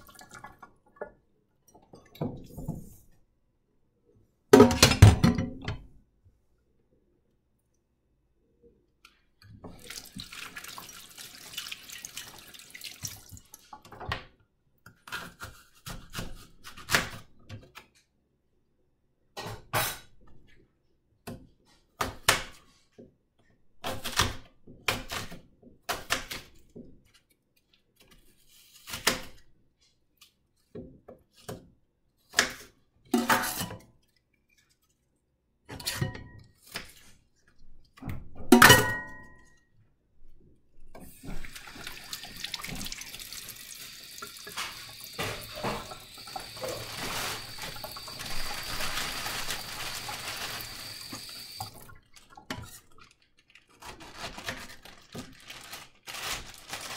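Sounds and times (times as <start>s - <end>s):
tap water running: 0.0s - 1.0s, 9.5s - 14.0s, 41.0s - 53.0s
knife cutting an apple: 14.9s - 17.3s, 28.1s - 29.4s.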